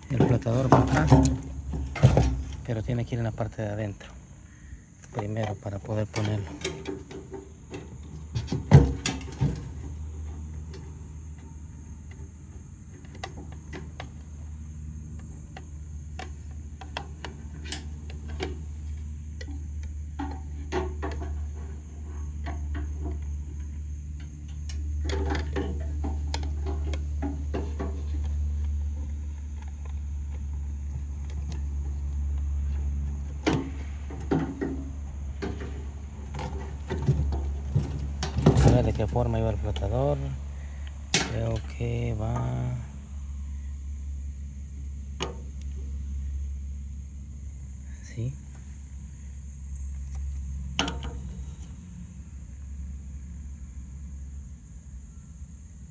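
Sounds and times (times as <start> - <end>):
clicks and knocks of handled parts: 0.0 - 4.1, 5.0 - 14.4, 15.1 - 42.8, 49.8 - 51.8
steady low hum: 0.0 - 55.9.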